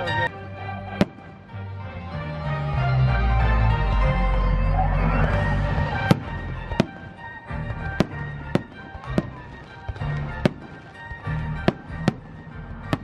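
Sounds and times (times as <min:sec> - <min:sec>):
music: 0:00.0 - 0:13.0
fireworks bursting: 0:01.0 - 0:01.4, 0:05.7 - 0:13.0.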